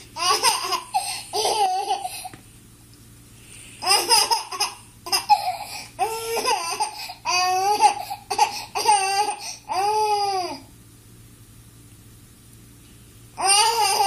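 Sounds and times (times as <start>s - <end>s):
baby laughing: 0.0s - 2.3s, 3.8s - 10.5s.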